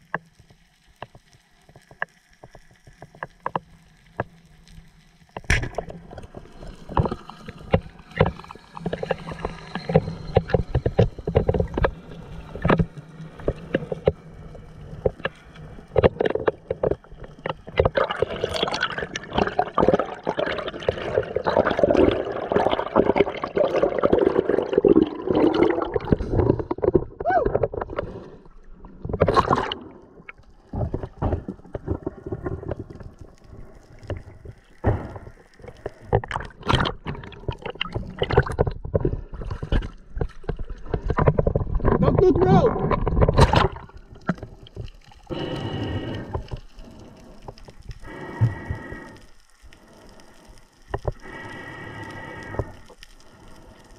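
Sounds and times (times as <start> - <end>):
underwater water rushing: 5.4 - 53.9
churning water: 16.0 - 33.0, 36.1 - 47.0.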